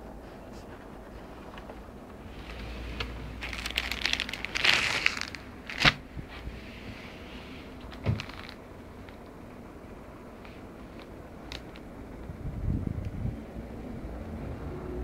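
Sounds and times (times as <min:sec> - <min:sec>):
plastic wrapping crinkling: 0:02.4 - 0:06.0, 0:07.8 - 0:09.3, 0:10.4 - 0:11.9.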